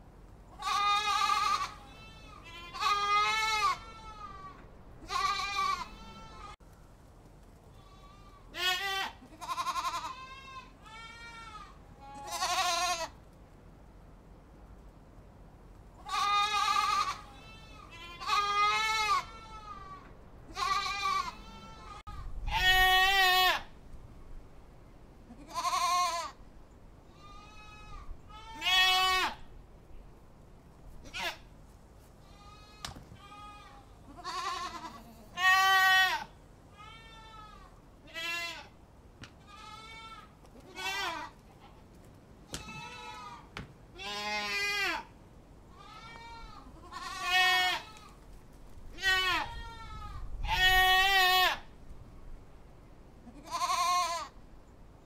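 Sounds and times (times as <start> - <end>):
goats bleating: 0.6 - 6.6, 7.7 - 13.2, 16.0 - 23.7, 25.3 - 26.4, 27.2 - 29.4, 32.2 - 38.7, 39.4 - 41.4, 42.6 - 45.1, 45.7 - 48.2, 48.9 - 51.6, 53.2 - 54.3.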